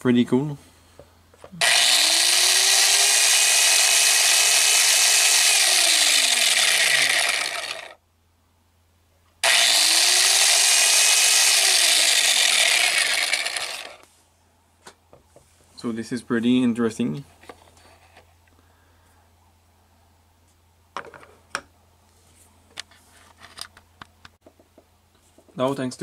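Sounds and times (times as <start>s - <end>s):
small electric motor whirring: 1.6s - 8.0s, 9.4s - 14.1s.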